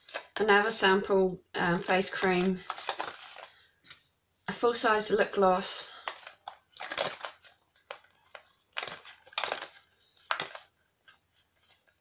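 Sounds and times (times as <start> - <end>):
packaging rustling: 0.0 - 0.4, 1.8 - 4.1, 6.0 - 12.0.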